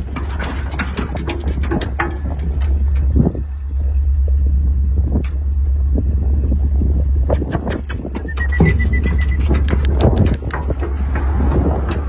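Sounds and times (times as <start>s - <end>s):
sharp clicks and rattles: 0.0s - 3.6s, 7.2s - 12.0s
pickup truck rumble: 0.0s - 12.0s.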